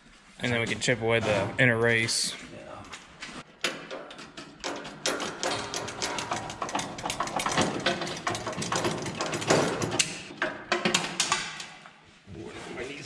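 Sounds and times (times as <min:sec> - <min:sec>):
metal-on-metal tapping: 0:03.6 - 0:11.8.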